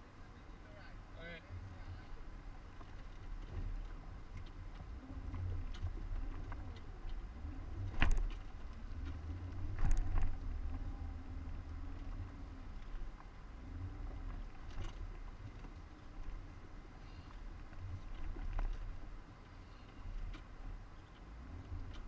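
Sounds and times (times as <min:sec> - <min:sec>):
engine running at low revs: 0:01.4 - 0:22.0.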